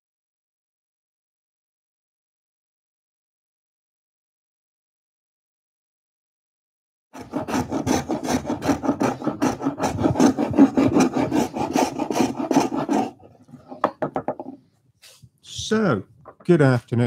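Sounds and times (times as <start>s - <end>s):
spokeshave cutting wood: 7.2s - 14.6s.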